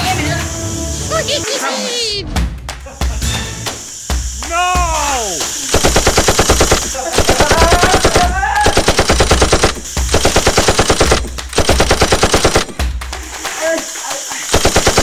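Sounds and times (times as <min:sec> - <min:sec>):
person crying out: 0:04.5 - 0:05.4, 0:06.9 - 0:08.9
automatic gunfire bursts: 0:05.6 - 0:12.8, 0:14.4 - 0:15.0.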